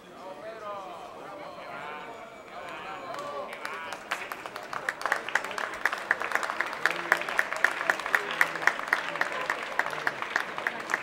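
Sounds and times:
crowd applauding: 0:02.4 - 0:11.0
close hands clapping sharply: 0:02.6 - 0:11.0.

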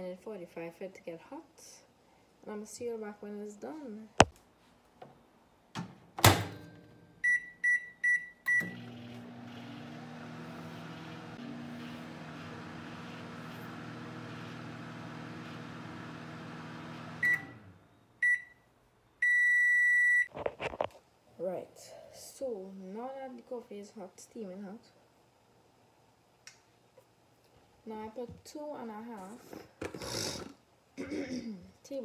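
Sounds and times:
microwave end-of-cycle beeps: 0:06.5 - 0:11.7, 0:15.4 - 0:18.6, 0:19.2 - 0:20.3
microwave keypad beeps: 0:07.2 - 0:08.8, 0:19.2 - 0:20.3
microwave oven humming: 0:08.4 - 0:18.0.

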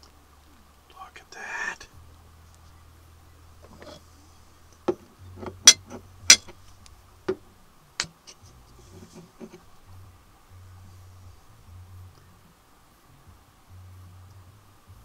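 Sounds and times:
rustling: 0:00.0 - 0:12.5.

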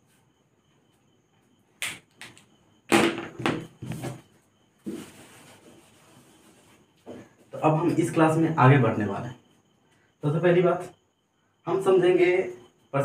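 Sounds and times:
duster wiping whiteboard: 0:04.8 - 0:06.8.

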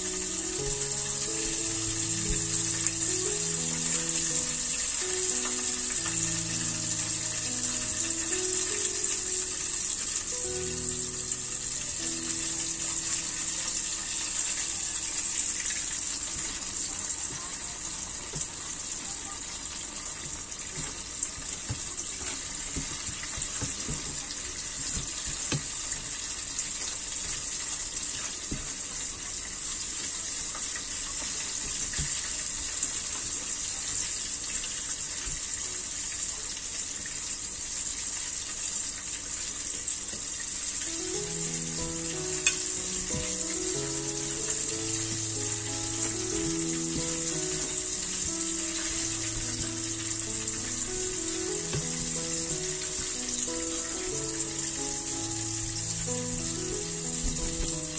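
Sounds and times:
slow background music: 0:00.0 - 0:18.9, 0:40.6 - 0:57.9
oil sizzling: 0:00.0 - 0:57.9.

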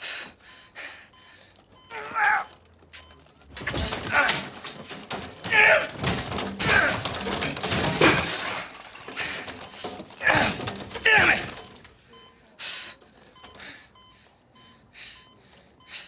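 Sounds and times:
man grunting and crying out: 0:01.9 - 0:02.5, 0:10.2 - 0:11.6
bed frame rattling: 0:02.2 - 0:12.1.

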